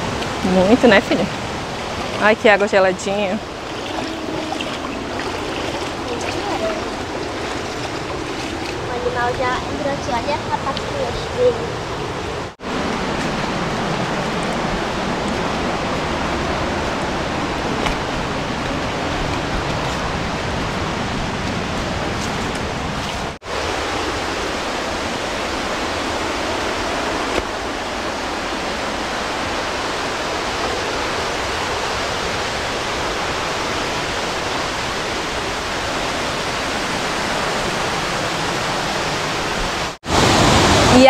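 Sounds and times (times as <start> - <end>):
waterfall and rapids rushing: 0.0 - 41.0.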